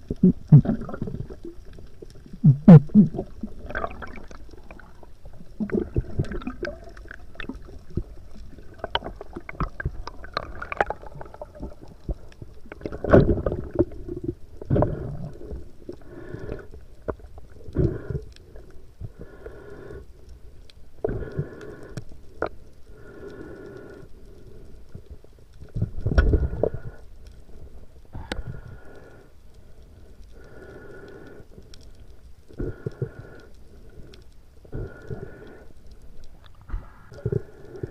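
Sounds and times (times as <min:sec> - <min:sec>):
water rushing and sloshing: 0:00.6 - 0:14.0.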